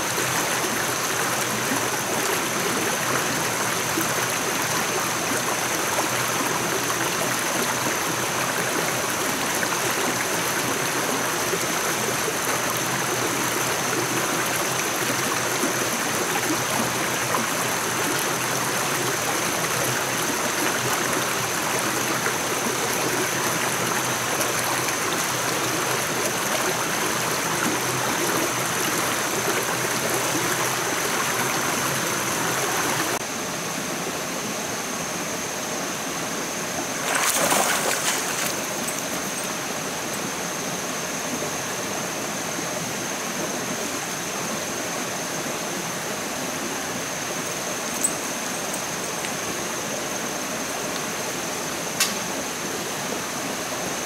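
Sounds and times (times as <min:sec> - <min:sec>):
stream rushing over stones: 0:00.0 - 0:33.3, 0:34.5 - 0:54.0.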